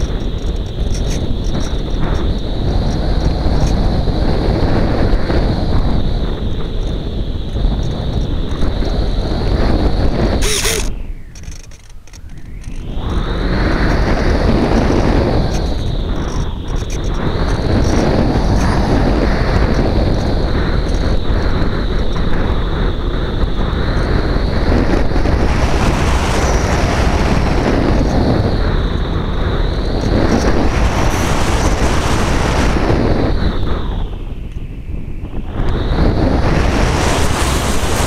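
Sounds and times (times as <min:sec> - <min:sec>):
wind rushing over microphone: 0:00.0 - 0:38.0
electric motor whine: 0:05.8 - 0:34.6.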